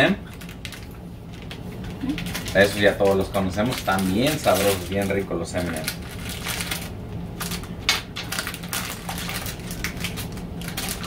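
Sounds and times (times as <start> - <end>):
plastic packaging crinkling: 0.0 - 11.0.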